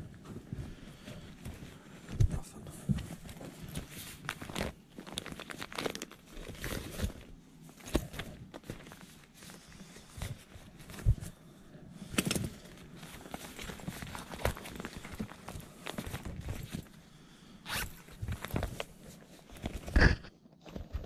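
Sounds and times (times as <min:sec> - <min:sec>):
purse material rustling: 0:03.0 - 0:11.6, 0:12.2 - 0:20.0
zipper and hardware clicks: 0:17.6 - 0:18.2.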